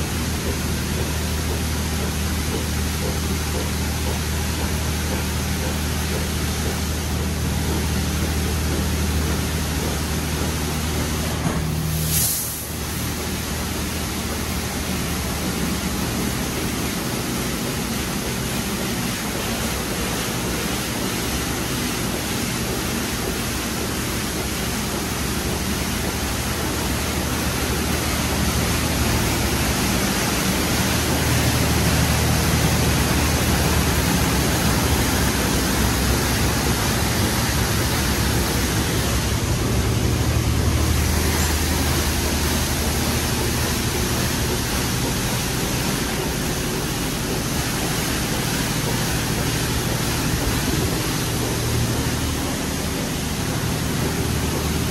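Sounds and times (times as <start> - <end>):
high-pressure water spray hissing: 11.8 - 14.0, 22.3 - 54.9.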